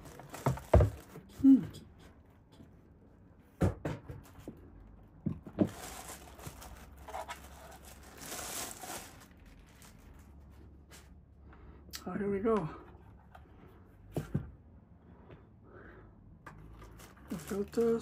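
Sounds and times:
plastic bag rustling: 0.0 - 1.4, 5.4 - 11.1, 16.6 - 18.0.

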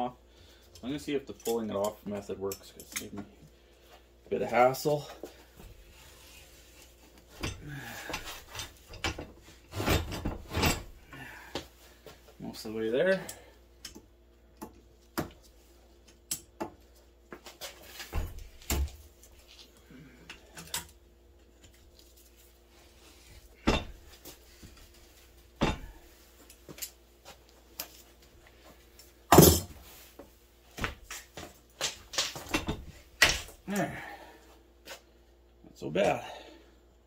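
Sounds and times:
metal clanks and knocks: 7.3 - 11.0, 23.6 - 24.2, 25.6 - 26.0, 32.4 - 33.5.

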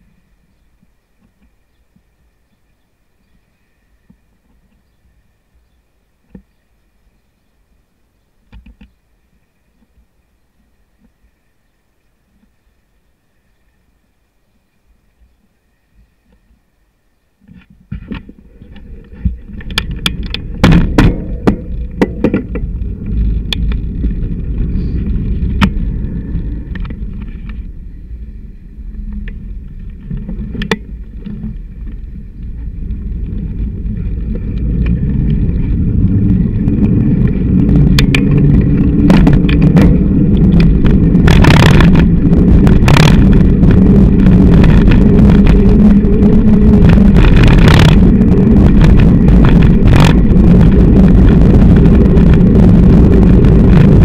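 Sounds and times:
wind rumble: 0.0 - 54.0
road vibration: 17.4 - 54.0
knocks and rattles of camera mount: 17.5 - 22.7.

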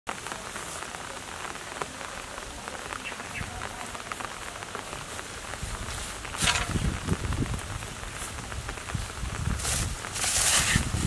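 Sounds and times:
light rain on leaves: 0.1 - 11.0.

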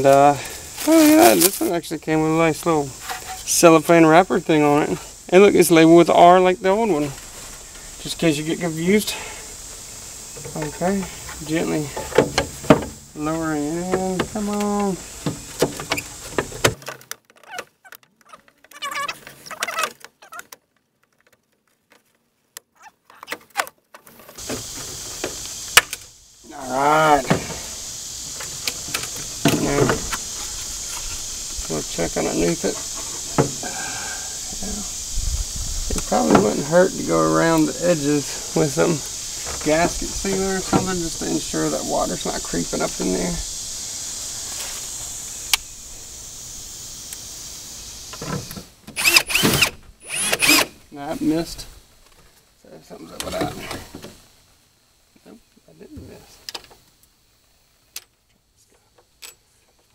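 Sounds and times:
steady hiss: 0.0 - 17.1, 23.4 - 59.9
cordless drill whirring: 49.0 - 50.7.

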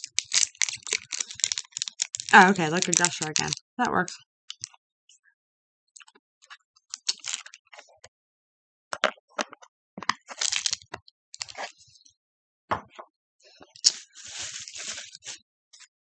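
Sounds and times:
packaging clicks and knocks: 0.0 - 3.6
packaging crinkling: 0.0 - 3.6, 6.9 - 7.6, 10.2 - 11.7, 13.8 - 15.4.

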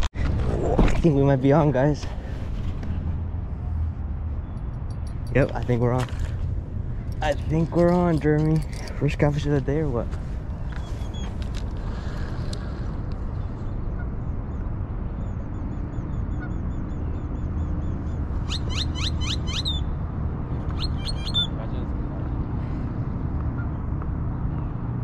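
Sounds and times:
birds chirping: 4.3 - 22.8
downward-sweeping bird calls: 16.3 - 20.0, 20.7 - 21.6.

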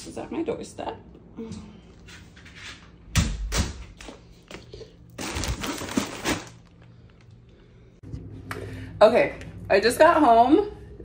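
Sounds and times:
plastic bag crinkling: 5.1 - 7.3
thumps of plastic mailer bag: 5.2 - 6.6.

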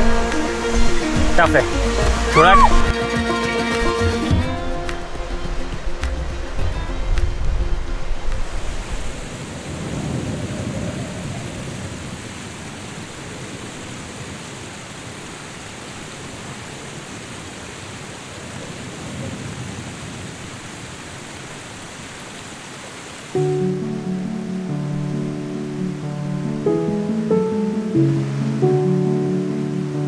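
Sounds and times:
fast-flowing water rushing: 0.0 - 30.0
wind gusts on microphone: 4.2 - 23.2.

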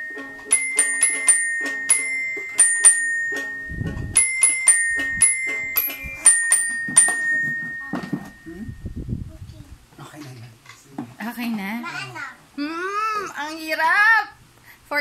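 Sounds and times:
toy piano melody: 0.0 - 8.9.

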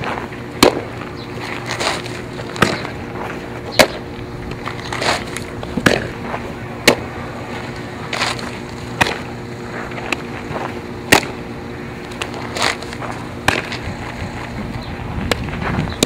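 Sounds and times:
low hum: 0.0 - 16.0
ball smacking into mitt: 1.8 - 3.0, 4.9 - 6.2, 13.4 - 13.8.

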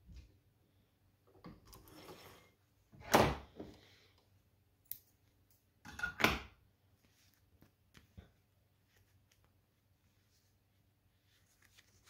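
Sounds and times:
soft rustle: 6.9 - 12.0.

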